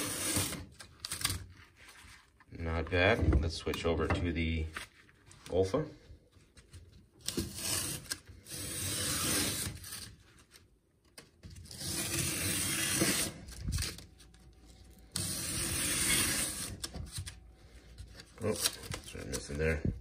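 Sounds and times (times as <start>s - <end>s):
knife slicing cardboard: 11.6s - 13.4s.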